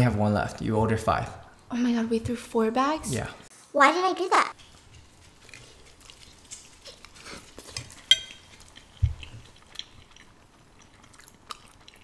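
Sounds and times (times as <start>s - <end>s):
slurping and chewing: 4.6s - 12.0s
fork clinking against dish: 7.8s - 8.5s.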